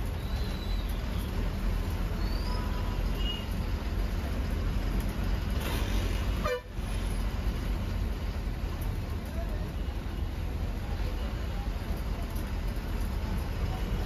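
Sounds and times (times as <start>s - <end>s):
bus engine and road rumble: 0.0s - 14.0s
vehicle horn toot: 6.4s - 6.7s.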